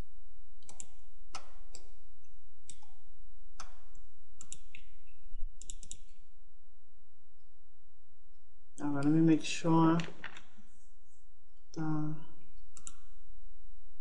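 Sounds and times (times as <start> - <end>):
mouse and keyboard clicks: 3.6 - 5.0, 5.6 - 6.1, 12.8 - 13.1.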